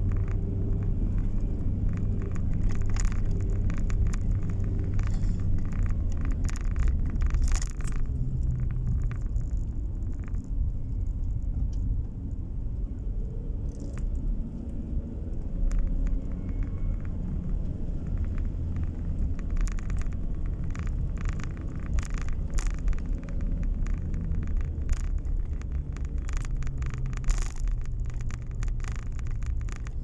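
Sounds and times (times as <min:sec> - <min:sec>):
car engine and tyre rumble: 0:00.0 - 0:30.0
short clicks and rattles: 0:15.6 - 0:30.0.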